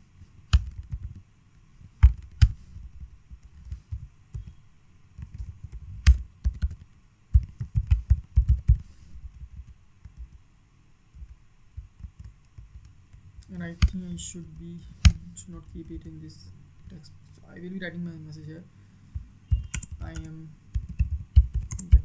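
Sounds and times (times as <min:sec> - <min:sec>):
typing on computer keyboard: 0:00.5 - 0:01.2, 0:05.2 - 0:10.4, 0:19.5 - 0:22.0.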